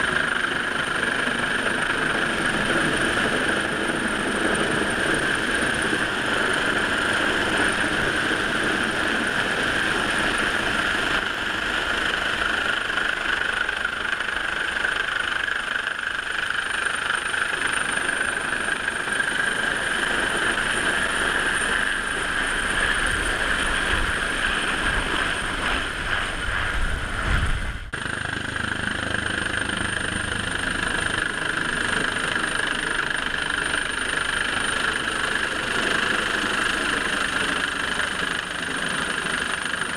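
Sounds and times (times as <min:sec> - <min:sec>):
helicopter rotor and turbine: 0:00.0 - 0:39.9
low rumble of downwash buffeting: 0:20.0 - 0:28.0.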